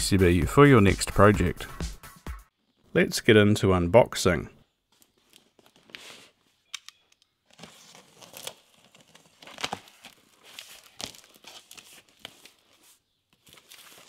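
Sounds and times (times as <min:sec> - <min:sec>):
packing tape tearing: 0:07.5 - 0:12.6
cardboard flaps scraping and crackling: 0:07.5 - 0:14.0.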